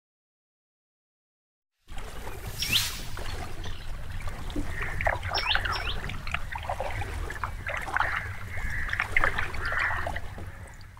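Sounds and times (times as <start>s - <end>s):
birds chirping: 2.1s - 10.9s
bird falling whistles: 2.6s - 3.1s.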